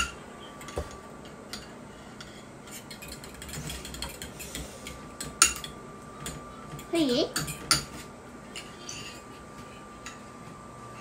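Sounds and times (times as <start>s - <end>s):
fork beating eggs in a bowl: 1.6s - 9.3s.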